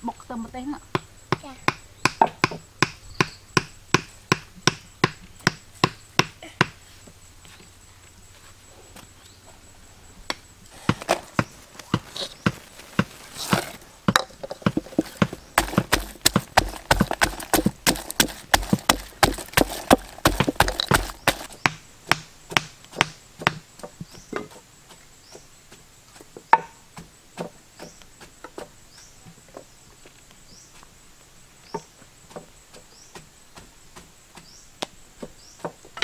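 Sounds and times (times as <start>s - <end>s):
hammer tapping wooden stakes: 0.9s - 6.8s, 10.3s - 25.0s, 26.5s - 28.7s
pestle pounding in a mortar: 14.1s - 23.6s.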